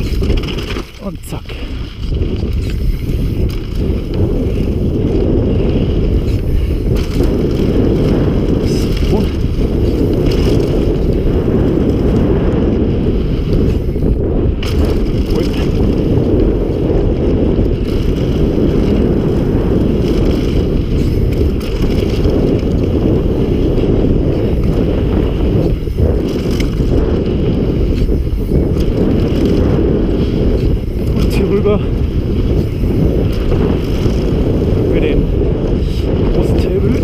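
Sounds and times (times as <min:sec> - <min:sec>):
tyres rolling on dirt trail: 0:00.0 - 0:37.0
wind buffeting microphone: 0:00.0 - 0:37.0.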